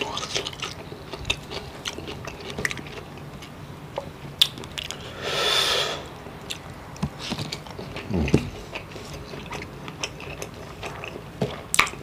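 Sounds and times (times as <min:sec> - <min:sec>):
man chewing with mouth clicks: 0:00.0 - 0:12.0
breathy hiss: 0:05.0 - 0:06.2.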